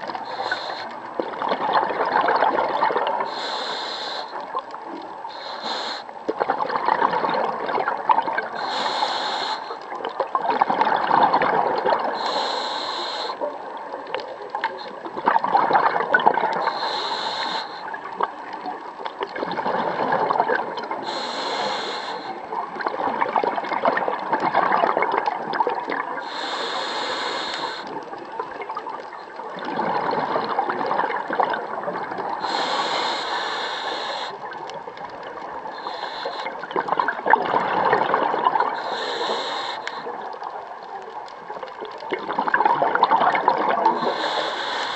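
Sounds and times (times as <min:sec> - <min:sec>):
regulator hissing inhalation: 0:00.2 - 0:00.9, 0:03.2 - 0:04.4, 0:05.3 - 0:06.1, 0:08.6 - 0:09.8, 0:12.2 - 0:13.5, 0:16.6 - 0:18.0, 0:21.0 - 0:22.4, 0:26.2 - 0:28.0, 0:32.4 - 0:34.4, 0:35.8 - 0:36.6, 0:38.7 - 0:40.1, 0:44.0 - 0:44.9
bubbling exhalation underwater: 0:10.3 - 0:12.2, 0:15.1 - 0:16.6, 0:22.6 - 0:26.1, 0:29.5 - 0:32.4, 0:36.6 - 0:38.8, 0:42.1 - 0:44.2.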